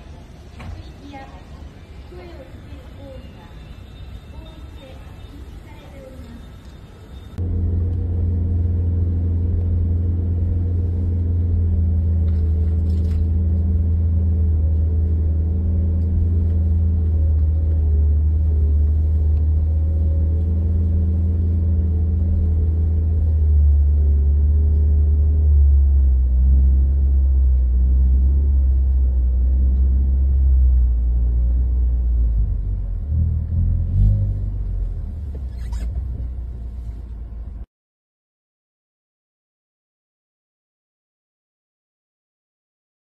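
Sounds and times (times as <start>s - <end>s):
car engine and tyre drone: 6.6s - 37.6s.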